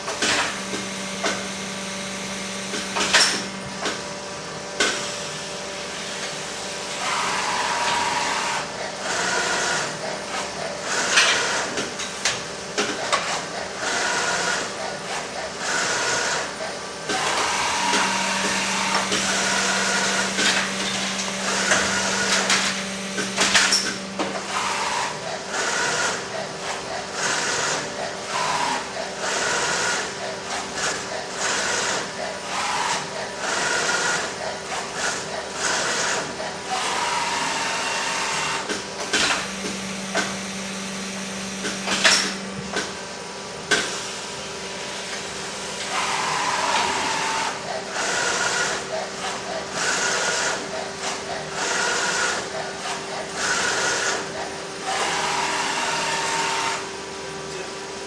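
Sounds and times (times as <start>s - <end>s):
machine hum: 0.0s - 58.0s
motors whirring: 17.1s - 27.8s.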